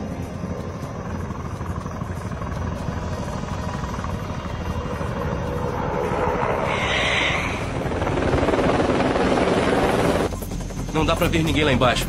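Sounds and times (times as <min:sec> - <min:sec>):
helicopter rotor chopping: 0:00.0 - 0:12.0
short high hiss: 0:06.7 - 0:07.7.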